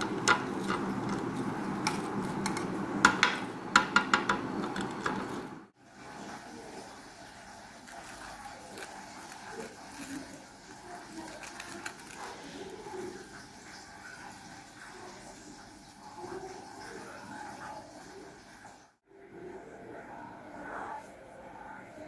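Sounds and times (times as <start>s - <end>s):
steady background hum: 0.0s - 5.8s
crackles of crispy coating: 6.3s - 13.9s.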